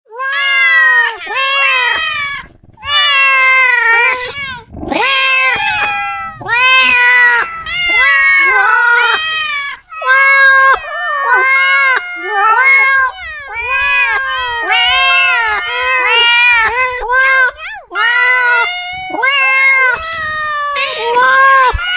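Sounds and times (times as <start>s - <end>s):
cats meowing loudly: 0.1s - 21.9s.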